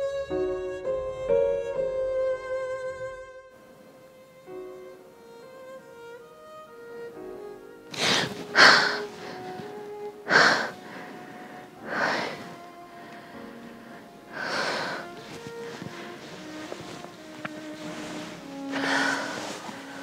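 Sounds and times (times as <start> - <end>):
slow string music: 0.0 - 20.0
sharp gasping breaths: 7.9 - 9.7, 10.3 - 16.6, 18.7 - 20.0.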